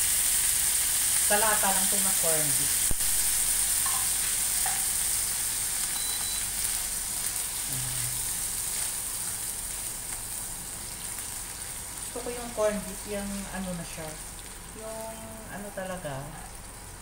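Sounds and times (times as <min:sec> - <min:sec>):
meat sizzling in oil: 0:00.0 - 0:17.0.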